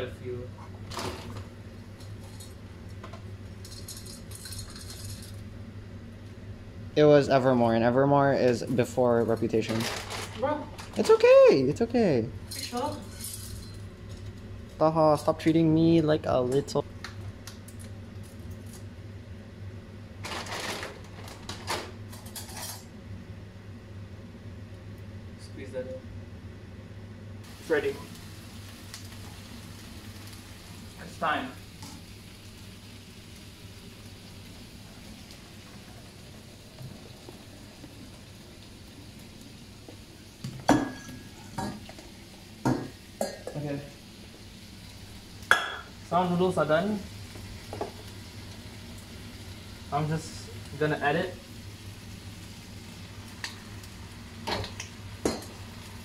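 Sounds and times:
steady low hum: 0.0 - 56.0
plastic packet crinkling: 9.6 - 11.1.

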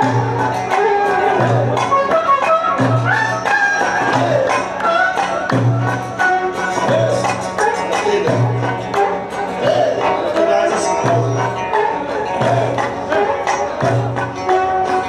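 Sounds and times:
frame drum and darbuka rhythm: 0.0 - 15.0.

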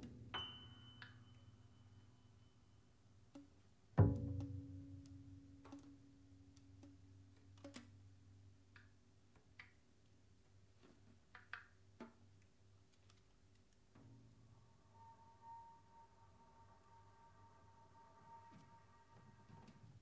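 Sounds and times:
low piano note ringing: 0.3 - 2.9, 14.1 - 20.0.

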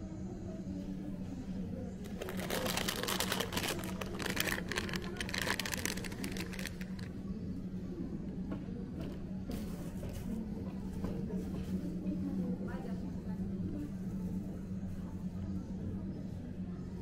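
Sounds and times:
plastic bag crinkling: 2.0 - 7.1.

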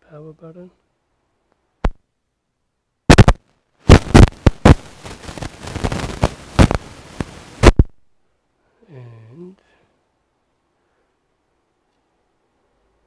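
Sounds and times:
rustling: 3.1 - 7.9.

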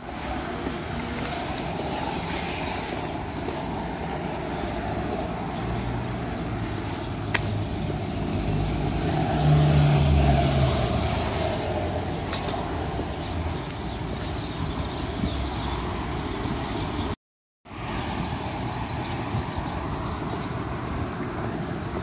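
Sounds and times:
road traffic: 0.0 - 22.0
vehicle engine passing: 7.5 - 13.6.

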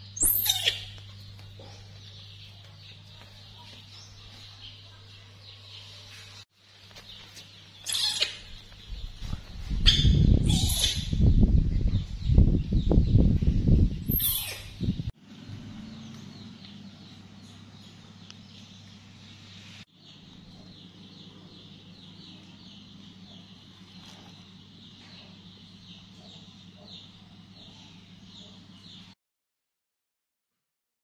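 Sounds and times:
birds chirping: 0.0 - 29.2.

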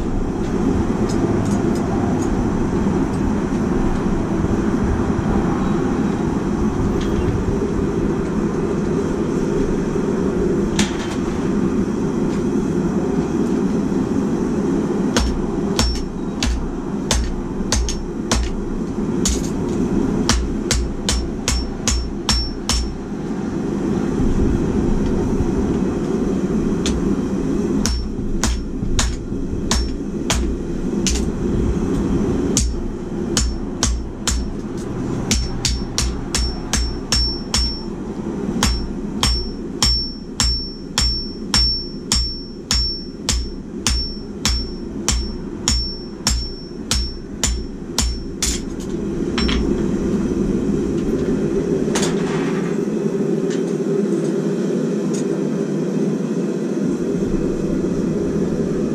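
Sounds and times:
low rushing noise: 0.0 - 58.9
hammer striking steel on anvil: 15.2 - 18.6, 19.2 - 19.7, 20.3 - 23.0, 27.8 - 31.3, 32.6 - 37.9, 38.6 - 48.8, 49.4 - 49.8.

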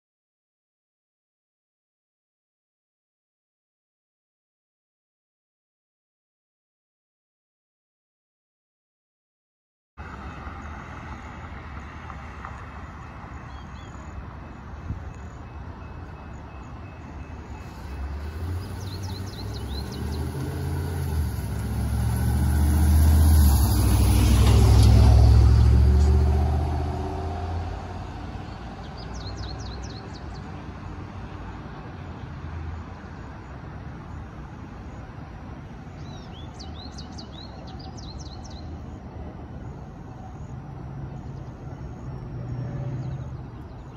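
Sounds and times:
heavy vehicle engine rumble: 10.0 - 43.9
street traffic: 10.0 - 43.9
birds chirping: 12.8 - 21.8, 28.3 - 31.1, 35.9 - 39.0.

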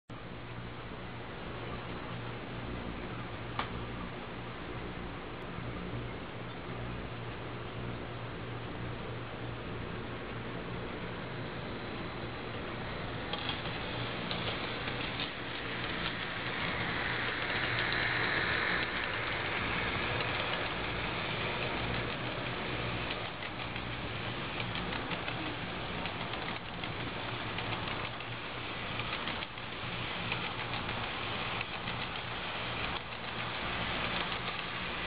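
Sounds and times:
low hum: 0.1 - 35.0
model train wheels rattling on track: 11.9 - 35.0.

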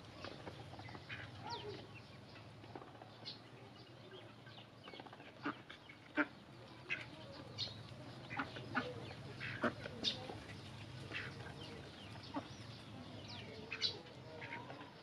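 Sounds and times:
duck bills pecking a tray: 0.2 - 1.8, 4.8 - 12.6
duck calls: 5.2 - 7.1, 8.3 - 10.0.

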